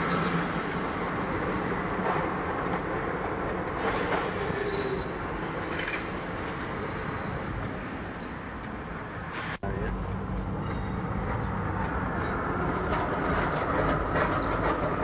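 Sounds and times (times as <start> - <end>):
tram wheels on rails: 0.0 - 15.0
high wheel squeal: 3.8 - 8.6.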